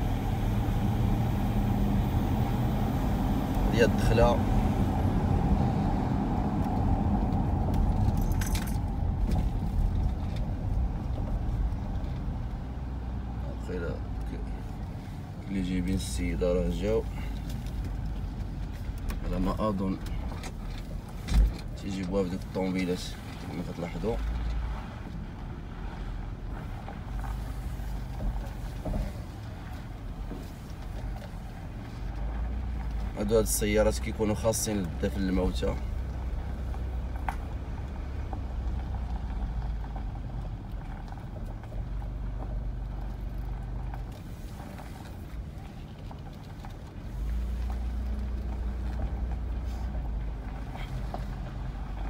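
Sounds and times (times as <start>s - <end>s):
car engine and road rumble: 0.0s - 52.0s
light rattle or jingle: 8.0s - 8.9s.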